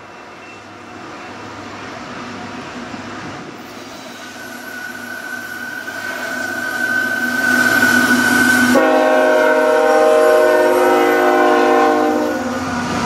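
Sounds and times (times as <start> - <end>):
diesel locomotive engine: 0.0 - 13.0
train rail noise: 0.0 - 13.0
steady high-pitched tone: 3.8 - 9.2.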